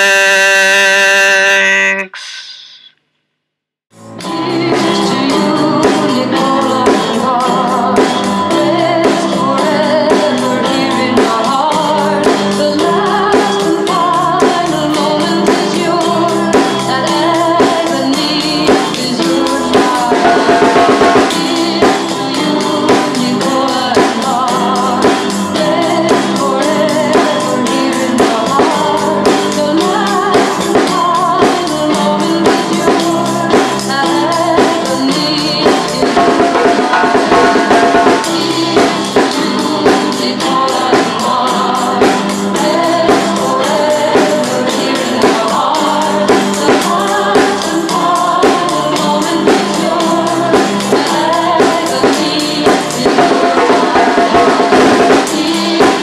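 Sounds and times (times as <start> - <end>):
drums keeping a steady beat: 0.0 - 2.8, 4.0 - 56.0
layered pitched music parts: 34.4 - 41.6.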